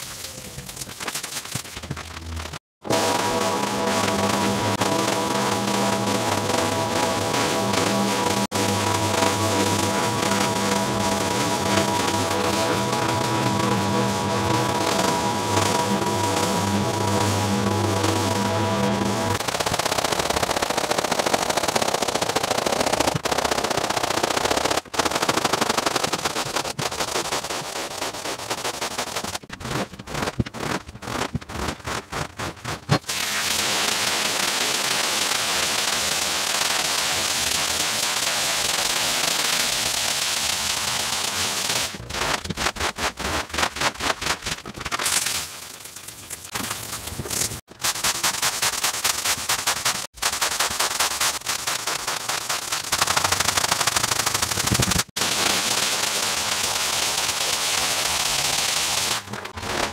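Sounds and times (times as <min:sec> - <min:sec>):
brush scrubbing wet rug: 0:47.7 - 0:55.0.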